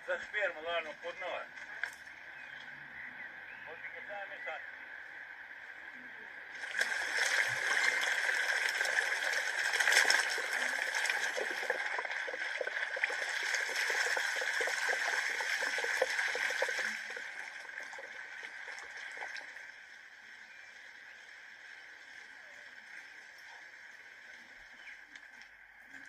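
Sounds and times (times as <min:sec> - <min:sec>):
water pouring onto stone: 0:06.6 - 0:19.6.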